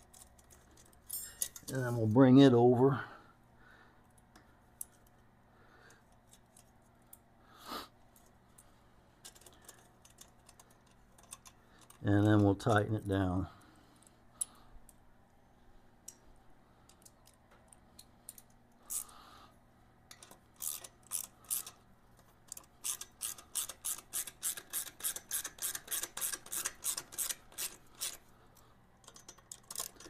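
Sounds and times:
ratchet wrench clicking: 20.1s - 21.8s, 22.5s - 28.2s, 29.0s - 30.0s.

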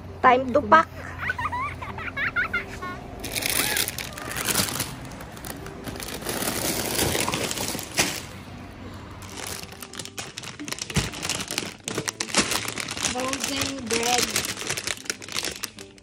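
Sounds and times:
plastic bags rustling and crinkling: 3.2s - 8.4s, 9.2s - 16.0s.

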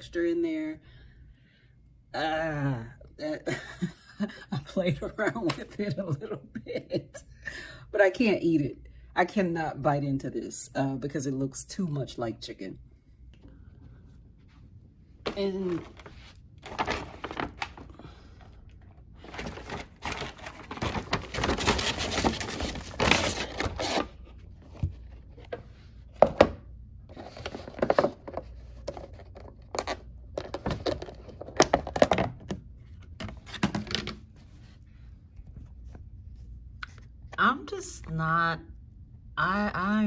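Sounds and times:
paper bag rustling: 15.7s - 17.9s, 19.2s - 24.2s.

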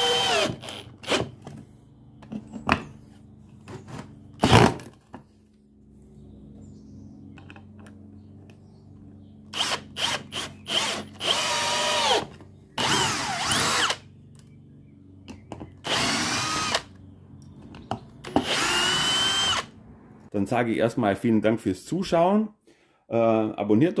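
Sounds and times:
cordless drill whining: 0.0s - 1.4s, 9.5s - 14.1s, 15.8s - 17.0s, 18.2s - 19.7s.

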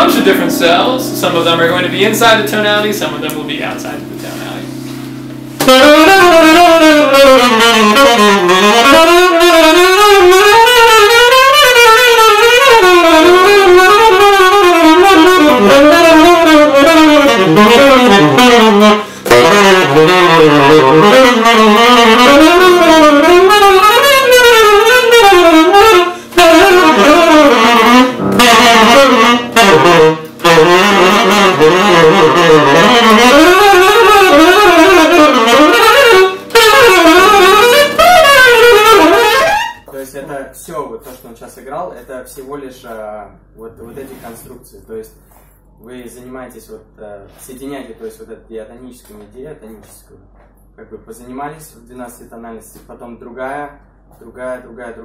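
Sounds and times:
piano sustained chord: 0.0s - 7.0s, 27.9s - 33.4s
tenor saxophone fast runs: 5.6s - 39.9s.

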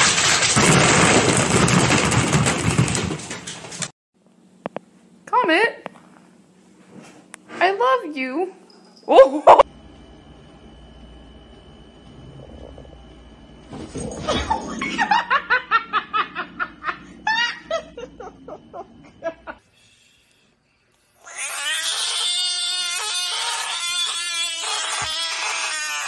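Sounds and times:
person laughing hard: 9.2s - 9.6s, 14.3s - 19.6s
frog screaming: 21.2s - 26.0s.

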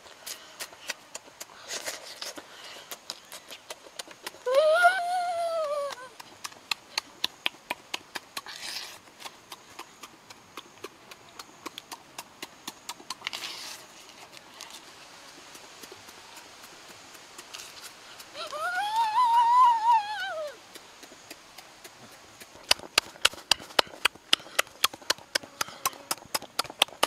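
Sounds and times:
shrimp being peeled and chewed: 0.2s - 4.5s, 5.9s - 19.1s, 20.5s - 27.0s
person humming mmm: 4.4s - 6.2s, 18.2s - 20.7s.

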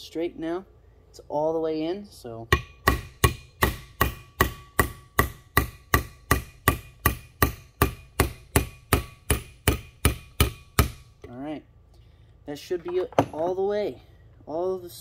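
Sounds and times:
hammer tapping steel punch: 2.5s - 11.1s.

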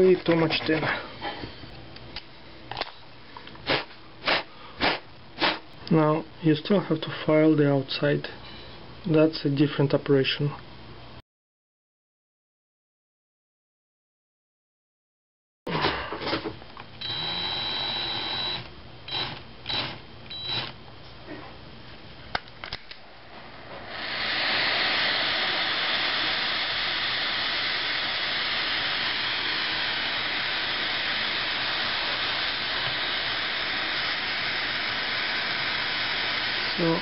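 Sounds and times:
cordless drill whirring: 17.0s - 20.8s, 23.8s - 36.8s
butane torch hissing: 23.2s - 37.0s.

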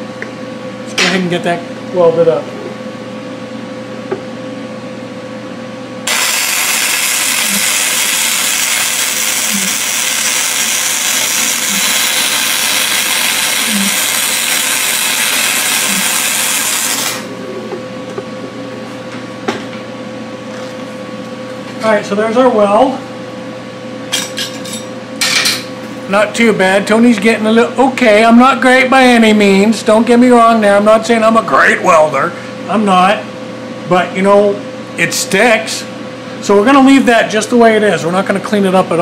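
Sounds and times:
steady hum: 0.0s - 39.0s
welding arc sizzling: 6.0s - 17.4s.

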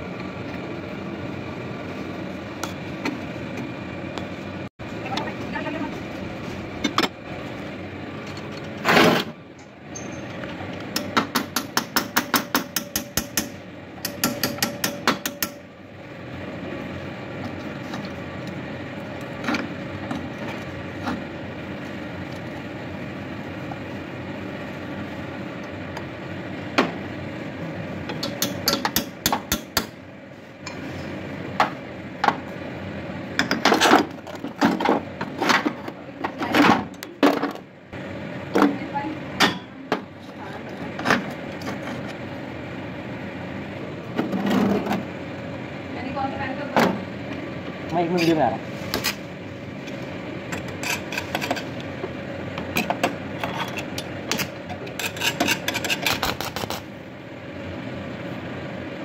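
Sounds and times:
hammer striking steel frame: 11.0s - 15.6s.

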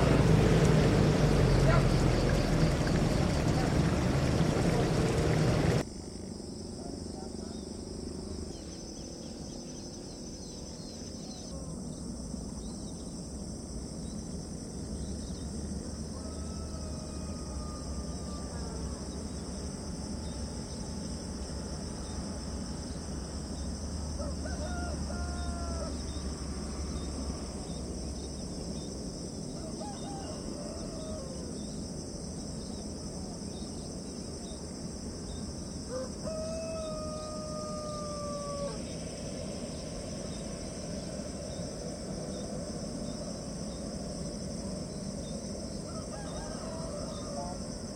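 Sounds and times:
low rumble: 0.0s - 5.8s
roosters crowing: 0.0s - 5.8s, 15.8s - 19.2s, 24.0s - 27.0s, 29.5s - 31.7s, 35.8s - 39.3s, 45.6s - 47.9s
insects chirring: 0.0s - 47.9s.

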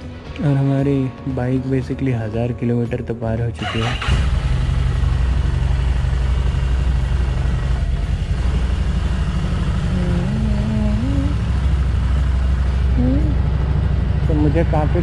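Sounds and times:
motorcycle engine at low revs: 3.9s - 15.0s.

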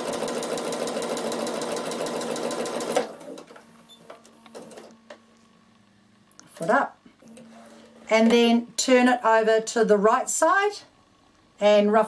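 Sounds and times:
sewing machine stitching: 0.0s - 3.5s.

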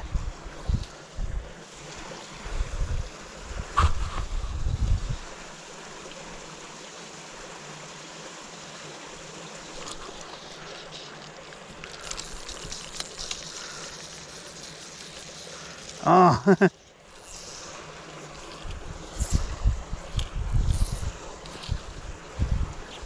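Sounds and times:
low outdoor hiss: 0.0s - 23.0s
fishing line ticks and rustles: 8.9s - 23.0s.

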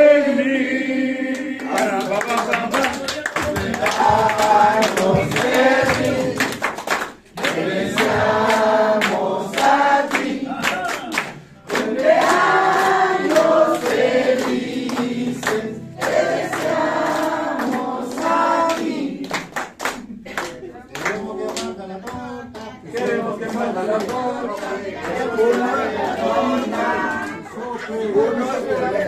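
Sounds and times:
group singing in unison: 0.0s - 19.8s, 20.6s - 29.0s.

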